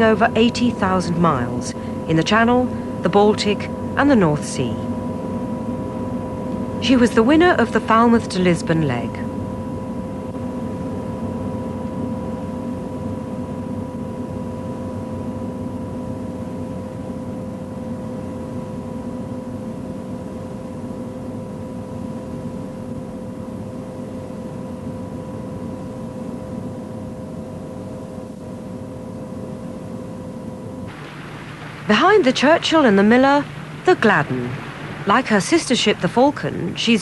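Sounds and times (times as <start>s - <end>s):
aircraft engine drone: 0.0s - 10.7s, 29.0s - 37.0s.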